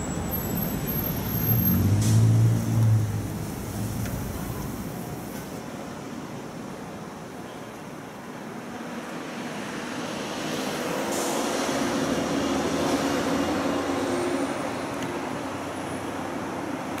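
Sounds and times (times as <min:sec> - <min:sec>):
heavy vehicle engine passing: 0:00.0 - 0:05.6, 0:09.2 - 0:16.8
street traffic: 0:00.0 - 0:17.0.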